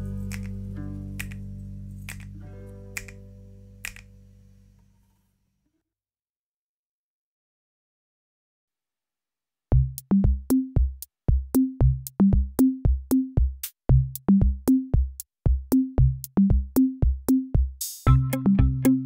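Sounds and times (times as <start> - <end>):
drum machine beat: 9.7 - 19.0.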